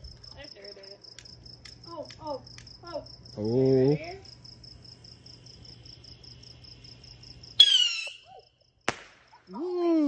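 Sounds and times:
crickets chirping: 0.0s - 10.0s
firework whistle: 7.6s - 8.3s
firework bang: 8.8s - 9.4s.

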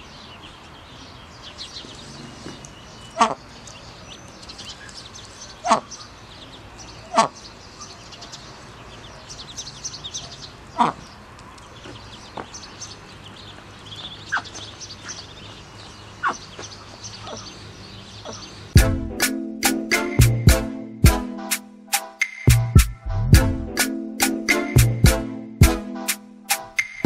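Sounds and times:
birds chirping and twittering: 0.0s - 19.0s.

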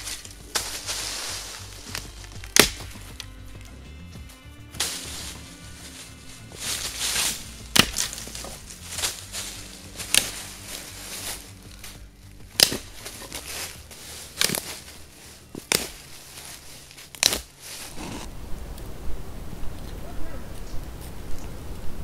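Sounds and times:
dry sticks snapping: 0.0s - 18.9s
leaf litter rustling: 0.0s - 22.0s.

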